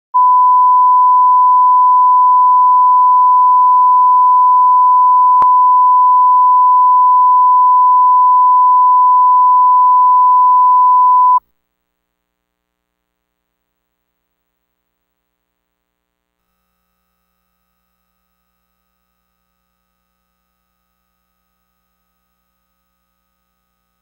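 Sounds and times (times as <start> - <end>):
steady test tone beep: 0.2 - 11.4.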